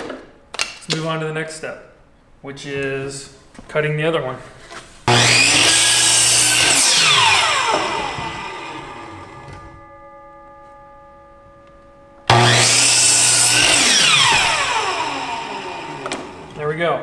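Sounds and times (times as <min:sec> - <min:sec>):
miter saw cutting wood: 0:05.1 - 0:09.8, 0:12.3 - 0:16.6.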